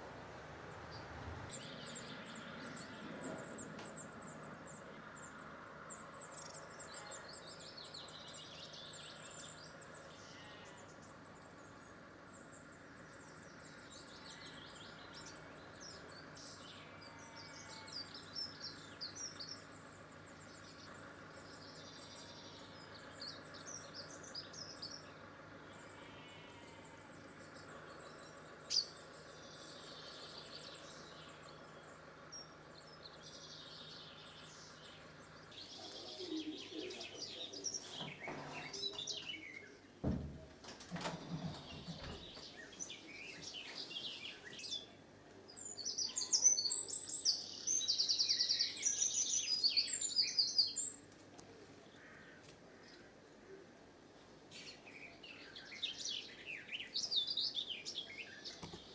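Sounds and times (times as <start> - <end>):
small birds chirping: 0.3 - 58.9
steady background hiss: 18.2 - 38.0.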